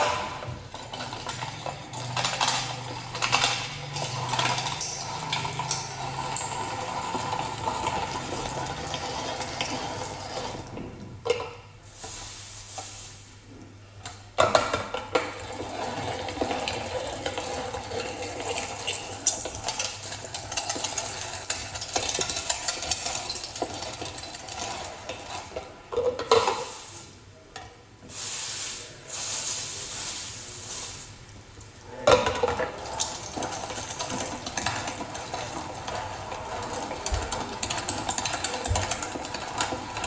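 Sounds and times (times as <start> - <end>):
meat grinder churning meat: 0.0 - 10.9, 15.1 - 26.7, 32.4 - 40.0.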